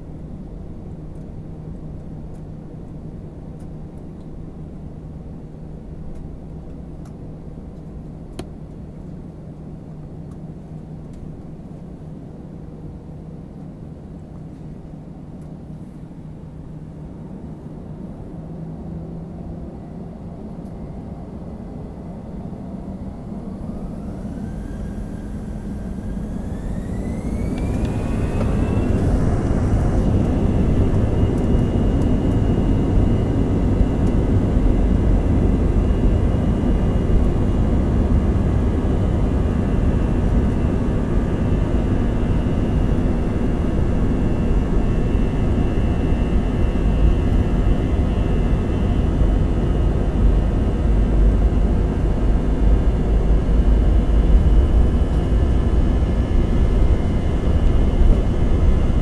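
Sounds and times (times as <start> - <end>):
low runway rumble: 0.0 - 59.0
faint high whine: 15.6 - 59.0
jet engine rushing noise: 23.5 - 59.0.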